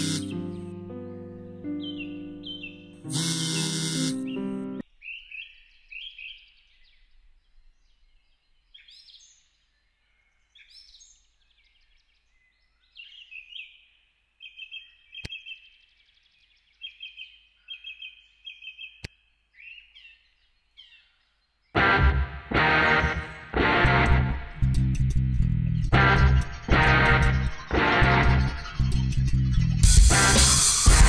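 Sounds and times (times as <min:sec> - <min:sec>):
birds chirping and singing: 0:00.0 - 0:21.9.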